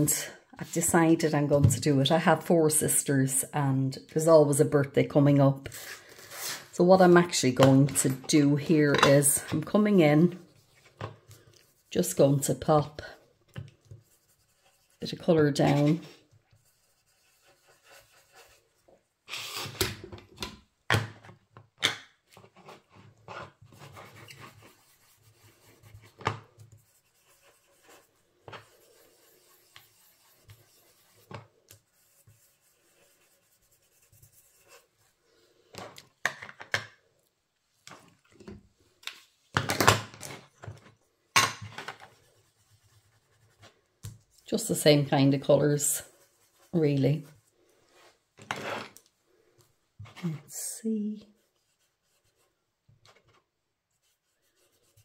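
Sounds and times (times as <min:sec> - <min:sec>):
brush scratching on cardstock: 0:11.5 - 0:13.1, 0:13.8 - 0:18.9, 0:22.6 - 0:35.2, 0:42.1 - 0:48.8, 0:51.2 - 0:52.6, 0:53.9 - 0:55.0.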